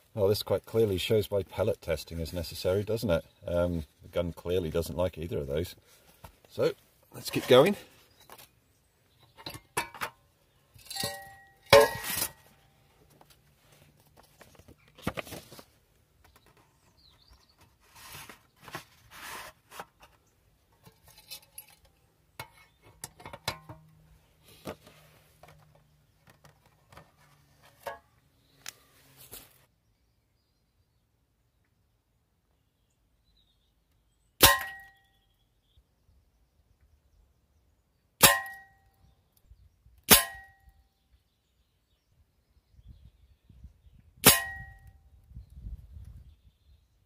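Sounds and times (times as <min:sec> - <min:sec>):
metal target holder clinks: 0:09.4 - 0:12.4
paper rustling: 0:13.3 - 0:15.8, 0:17.6 - 0:20.2.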